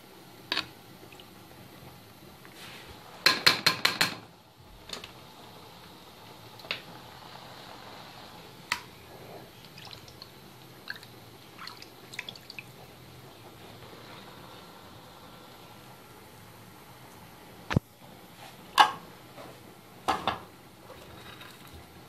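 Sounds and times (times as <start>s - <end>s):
water dripping and trickling: 9.6s - 12.9s.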